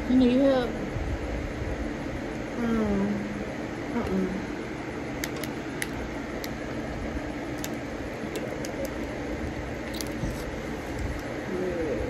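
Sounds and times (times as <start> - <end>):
steady background hum: 0.0 - 12.0
shellfish shells clicking: 5.2 - 6.6, 7.5 - 9.2, 9.8 - 10.2.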